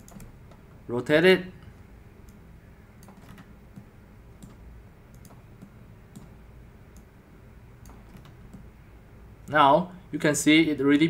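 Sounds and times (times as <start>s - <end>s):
computer mouse clicks: 0.0s - 0.7s, 3.0s - 7.1s, 7.8s - 8.7s
low steady hum: 0.0s - 11.0s.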